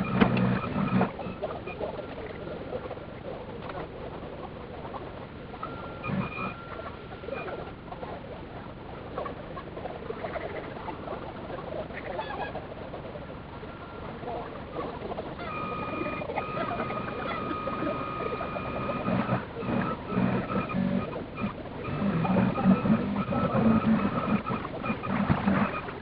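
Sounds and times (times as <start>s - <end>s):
steady whine: 0.0s - 26.0s
high squeaky chatter: 13.7s - 26.0s.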